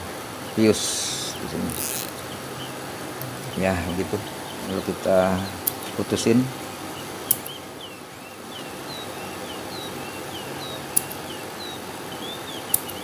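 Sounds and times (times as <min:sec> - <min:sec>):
bird chirping: 0:00.4 - 0:13.0
scissors snipping: 0:11.0 - 0:11.2.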